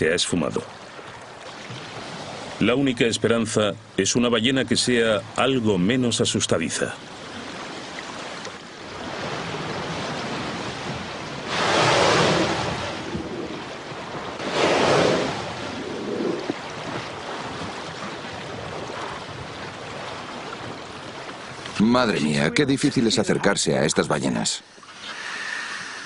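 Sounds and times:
sea noise: 0.0 - 26.0
wind: 0.0 - 26.0
whale breathing out: 11.4 - 13.6, 14.4 - 16.6, 24.7 - 26.0.

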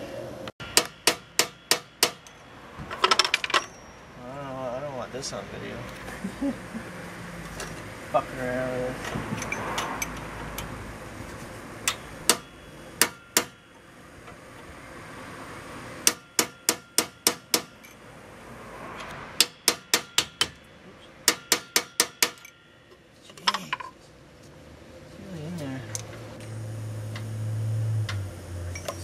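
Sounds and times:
hammer striking steel punch: 0.6 - 2.4, 11.8 - 13.7, 16.0 - 17.9, 19.4 - 22.8
metal clatter: 0.8 - 4.0.

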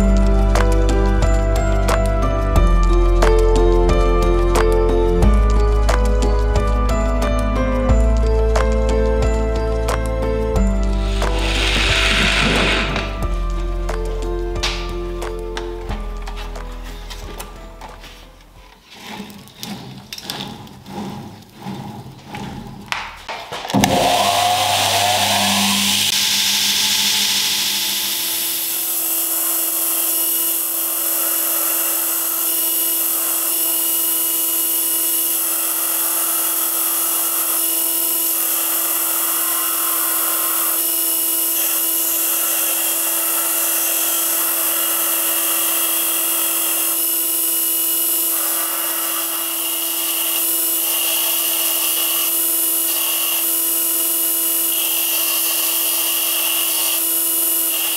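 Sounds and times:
belt grinder grinding steel: 9.6 - 15.6, 18.4 - 57.9.

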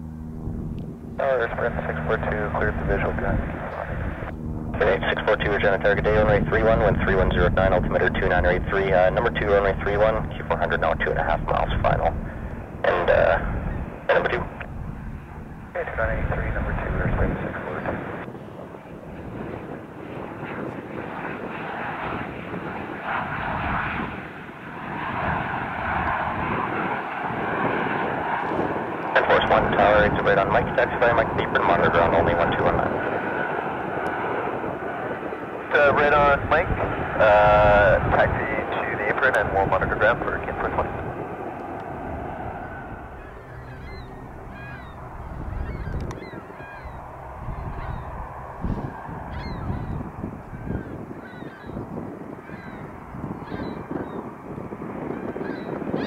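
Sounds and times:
low steady rumble: 0.0 - 51.7
jet engines rushing: 0.0 - 56.0
geese honking: 42.4 - 51.8, 52.4 - 53.8.

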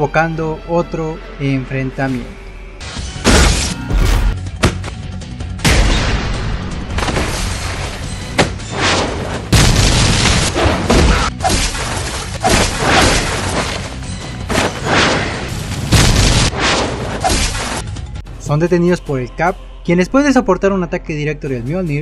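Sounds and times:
music: 0.0 - 22.0
heavy impacts and booms: 5.6 - 13.6.

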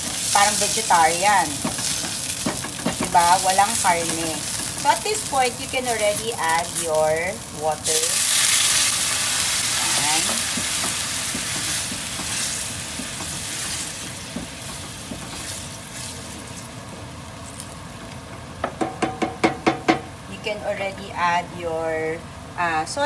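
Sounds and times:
water sizzling in hot skillet: 0.0 - 16.8
wooden spatula stirring sauce: 0.1 - 5.3, 10.1 - 16.6.

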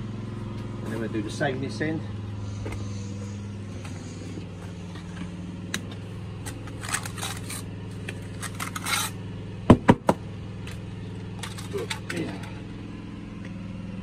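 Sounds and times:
low engine hum: 0.0 - 14.0
trowel scraping mortar on concrete: 6.8 - 7.7, 8.3 - 9.2.

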